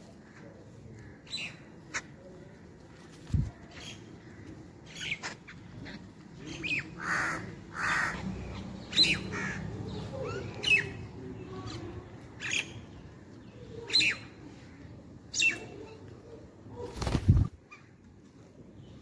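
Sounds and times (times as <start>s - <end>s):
mynas calling: 4.9s - 11.0s.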